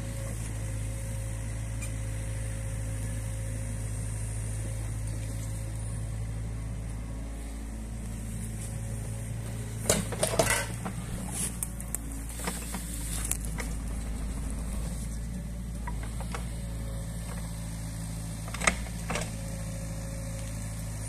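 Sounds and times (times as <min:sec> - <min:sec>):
excavator diesel engine running: 0:00.0 - 0:21.0
clatter of knocks and rustling: 0:09.8 - 0:11.0.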